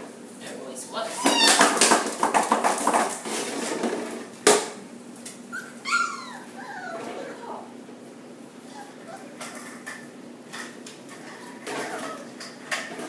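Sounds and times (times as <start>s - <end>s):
puppy whining: 0.9s - 1.8s, 5.4s - 7.8s, 8.6s - 10.2s, 11.1s - 12.8s
puppies clattering on tile floor: 1.1s - 5.4s, 9.0s - 13.0s.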